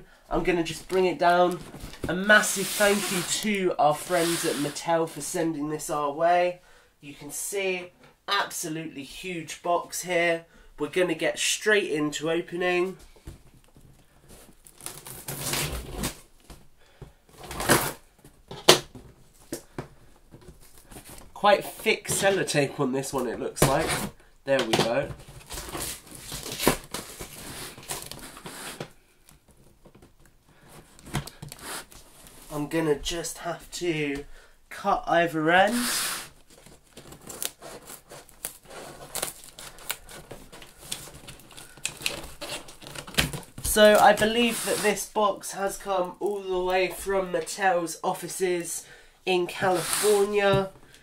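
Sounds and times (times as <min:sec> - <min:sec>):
tape and cardboard crackling: 0:00.6 - 0:04.8, 0:13.2 - 0:16.7, 0:23.6 - 0:32.5, 0:35.6 - 0:47.4.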